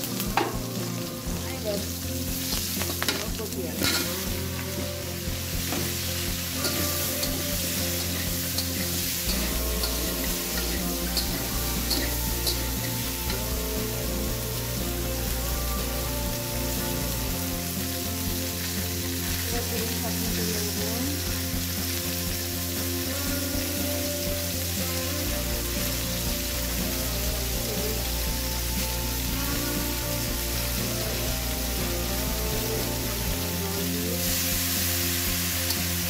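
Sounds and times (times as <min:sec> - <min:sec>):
vegetables sizzling in oil: 0:00.0 - 0:36.0.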